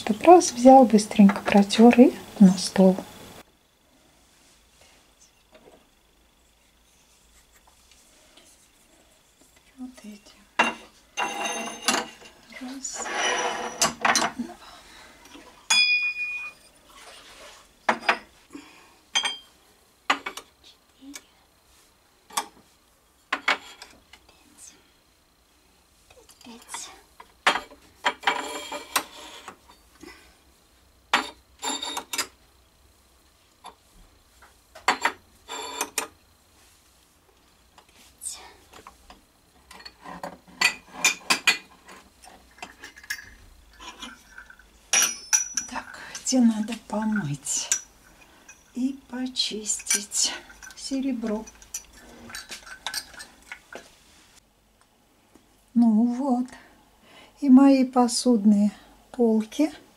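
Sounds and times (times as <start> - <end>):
metal cups clinking: 10.6 - 12.3, 19.1 - 19.5, 42.5 - 46.3, 47.1 - 48.8, 49.7 - 53.7
wine glasses clinking on wood: 15.7 - 16.6, 19.2 - 19.5, 44.9 - 45.7.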